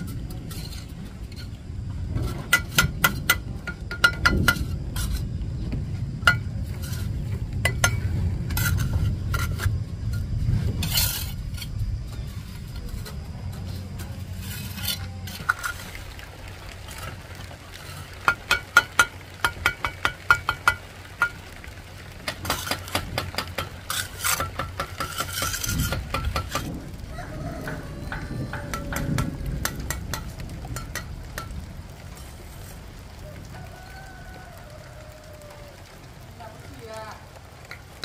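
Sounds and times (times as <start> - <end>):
low rumble: 0.0 - 17.8
scraping: 0.0 - 19.0, 22.3 - 33.0.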